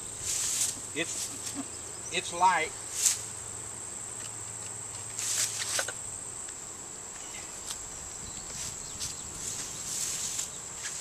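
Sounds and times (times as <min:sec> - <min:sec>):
high-pitched insect trill: 0:00.0 - 0:11.0
low hum of bees: 0:00.0 - 0:11.0
hive boxes scuffing and knocking: 0:04.2 - 0:06.0, 0:07.1 - 0:11.0.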